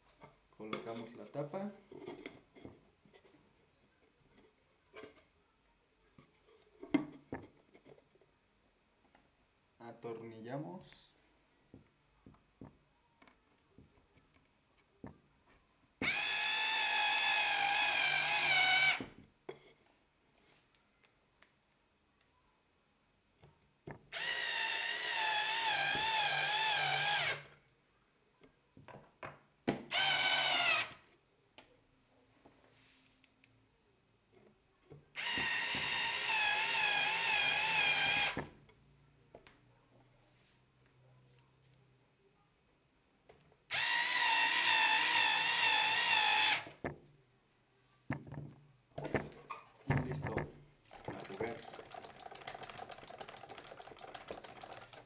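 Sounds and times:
drill-driver whine: 0:16.0 - 0:19.2, 0:24.1 - 0:27.6, 0:29.8 - 0:31.1, 0:35.1 - 0:38.6, 0:43.7 - 0:46.9.

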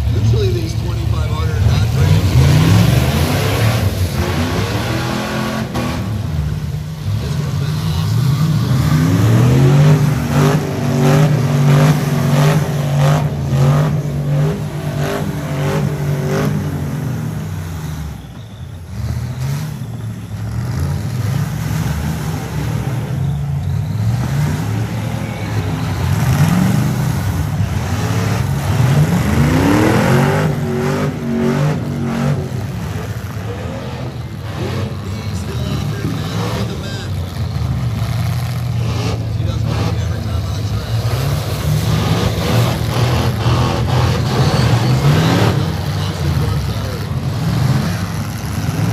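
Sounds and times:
truck engines revving: 0:00.0 - 0:48.9.

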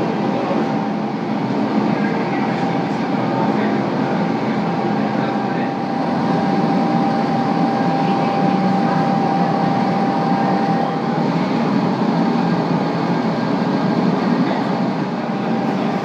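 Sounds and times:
furnace burner rushing: 0:00.0 - 0:16.0.

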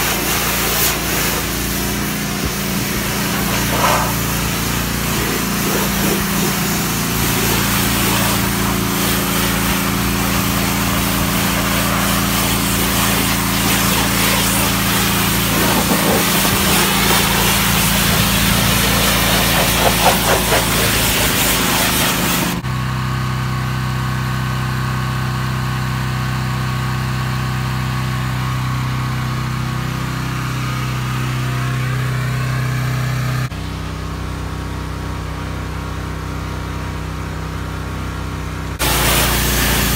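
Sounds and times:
pressure washer spray hissing: 0:00.0 - 0:22.6, 0:38.8 - 0:39.9
engine hum: 0:00.0 - 0:39.9.

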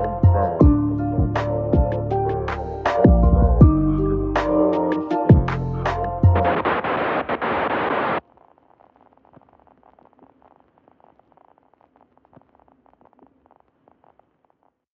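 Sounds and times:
lo-fi hip hop music: 0:00.0 - 0:08.2
static hiss burst: 0:06.4 - 0:14.5
faint crackling and clicks: 0:06.5 - 0:14.9.

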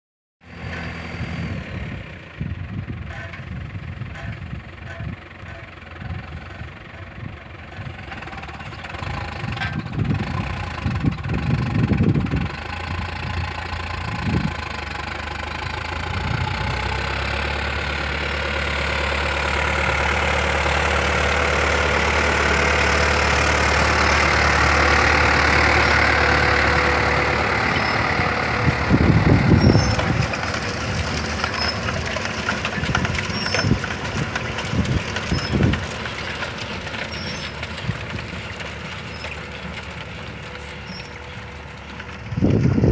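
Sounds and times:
tractor engine running: 0:00.4 - 0:42.9
low rumbles: 0:00.7 - 0:42.9
seed drill rattling and clicking: 0:29.9 - 0:40.1.

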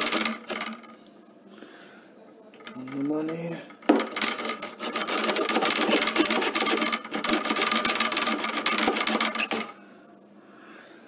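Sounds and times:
hand saw cutting: 0:04.2 - 0:09.6.

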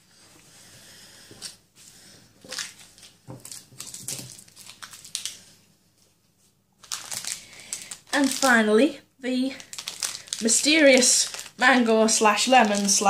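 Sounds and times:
plastic packaging crinkling: 0:02.4 - 0:05.6, 0:06.8 - 0:13.0.

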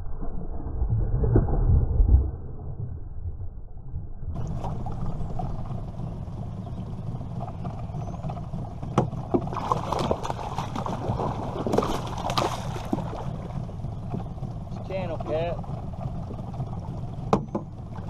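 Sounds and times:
steady low rumble: 0:00.0 - 0:18.0
fish thrashing and splashing: 0:09.2 - 0:14.6.

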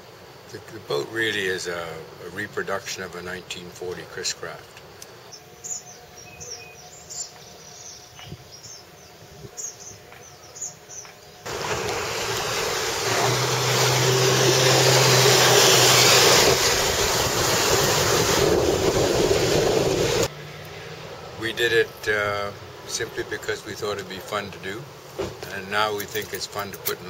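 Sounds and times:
wind and rushing water: 0:11.5 - 0:20.3.

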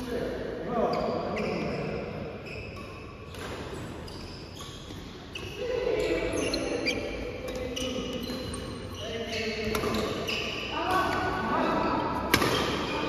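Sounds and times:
shoes squeaking on court floor: 0:00.8 - 0:13.0
rackets striking shuttlecock: 0:12.2 - 0:12.9.

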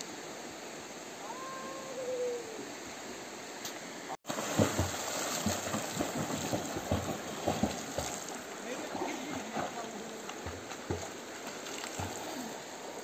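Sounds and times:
river water running: 0:00.0 - 0:13.0
swimmer kicking splashes: 0:04.2 - 0:12.6.

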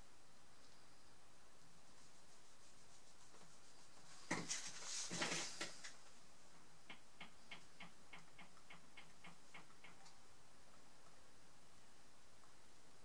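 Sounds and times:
steady light ticking: 0:06.8 - 0:10.2.

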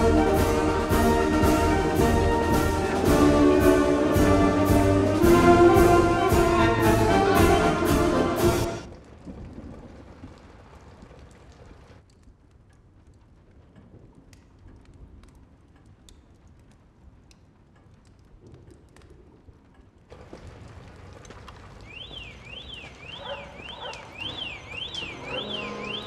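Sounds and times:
steady rain: 0:00.0 - 0:26.0
water dripping: 0:08.8 - 0:26.0
car alarm wailing: 0:21.9 - 0:26.0.

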